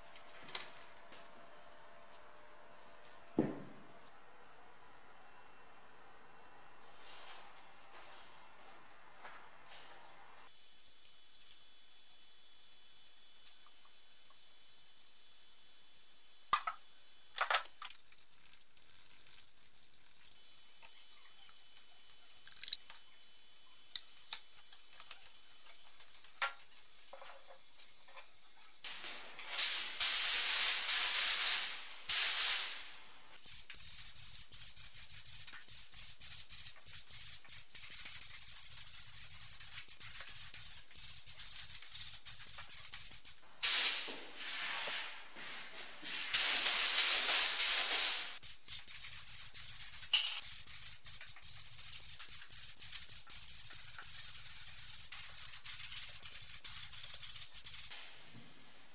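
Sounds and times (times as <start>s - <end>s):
spray gun spraying paint: 28.9s - 58.2s.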